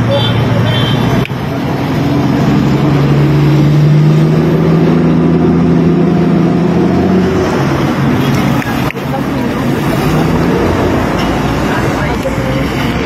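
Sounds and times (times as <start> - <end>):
street traffic: 0.0 - 13.0
truck engine running: 0.0 - 13.0.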